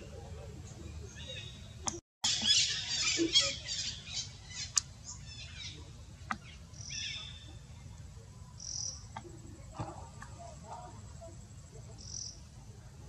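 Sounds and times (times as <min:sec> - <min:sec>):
monkey squealing calls: 0:02.3 - 0:04.1.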